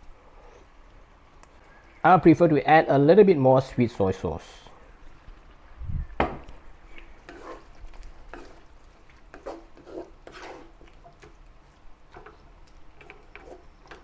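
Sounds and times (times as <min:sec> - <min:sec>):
wooden spatula scraping a wok: 0:07.0 - 0:14.0.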